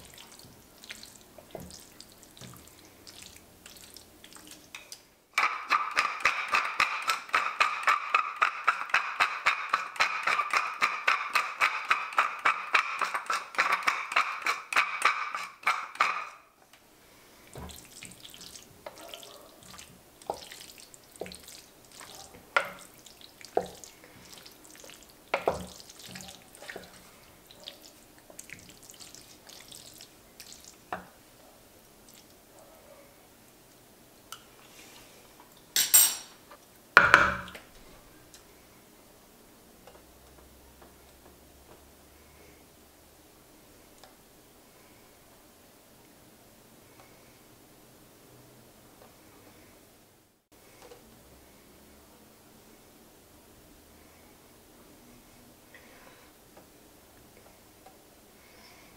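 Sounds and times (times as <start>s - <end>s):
wooden spoon stirring pasta: 0.0s - 16.4s, 17.0s - 32.4s
pepper mill grinding: 5.4s - 16.5s.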